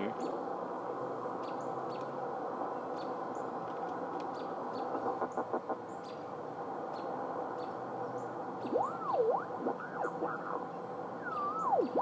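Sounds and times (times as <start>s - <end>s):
birds chirping faintly: 1.2s - 12.0s
radio static hiss: 4.9s - 5.9s, 8.7s - 12.0s.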